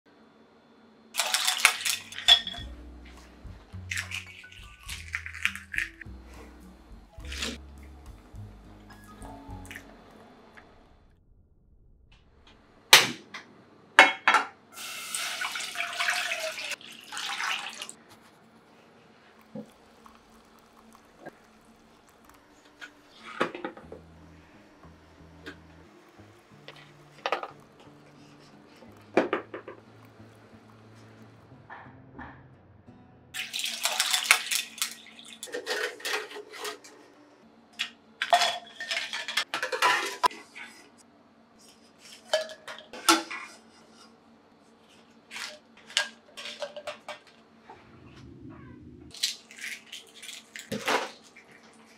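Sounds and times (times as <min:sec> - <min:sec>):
water pouring into saucepan: 0:01.2 - 0:02.2, 0:14.8 - 0:18.0, 0:19.4 - 0:23.4, 0:33.4 - 0:35.8
water sloshing and splashing: 0:33.4 - 0:36.6.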